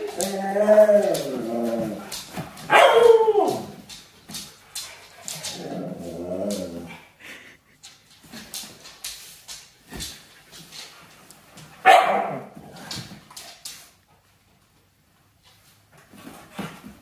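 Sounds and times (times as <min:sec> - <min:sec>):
dog howling: 0:00.0 - 0:02.1, 0:02.7 - 0:03.8.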